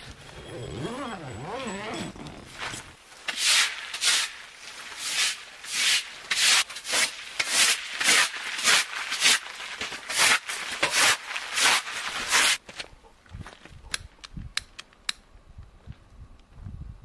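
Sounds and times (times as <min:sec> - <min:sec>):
broom sweeping on plastic tarp: 0:02.6 - 0:12.6.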